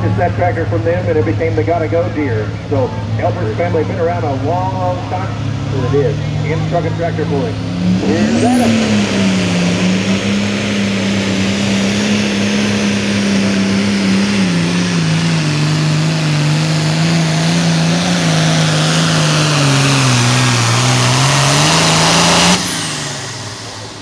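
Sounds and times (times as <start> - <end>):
diesel engine running under load: 0.0 - 24.0.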